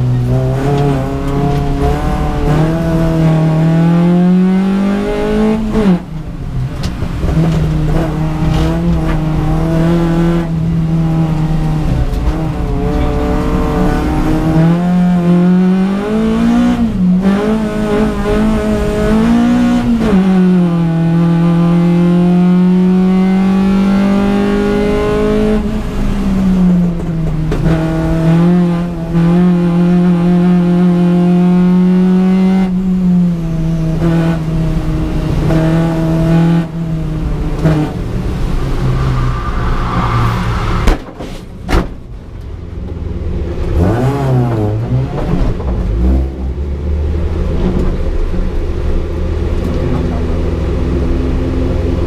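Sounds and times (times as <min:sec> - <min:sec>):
rally car engine revving: 0:00.0 - 0:52.0
sharp bangs: 0:40.7 - 0:42.2.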